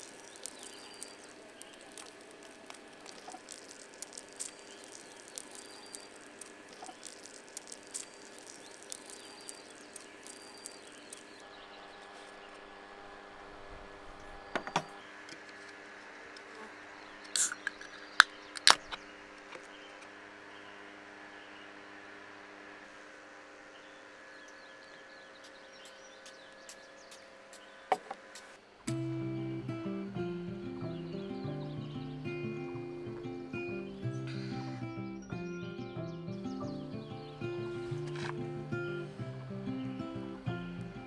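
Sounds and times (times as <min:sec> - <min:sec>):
butter crackling in a frying pan: 0:00.0 - 0:11.4
beer can opening: 0:17.3 - 0:19.0.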